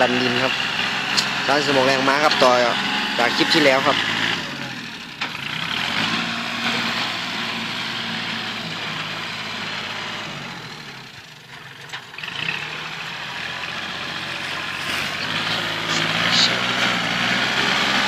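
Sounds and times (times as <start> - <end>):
tractor diesel engine under load: 0.0 - 18.0
blade pushing soil: 11.5 - 18.0.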